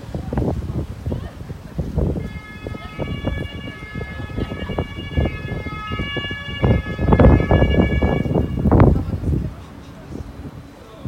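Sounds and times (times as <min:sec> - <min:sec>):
gusty low rumble: 0:00.0 - 0:11.0
tram high-pitched tones: 0:02.1 - 0:10.8.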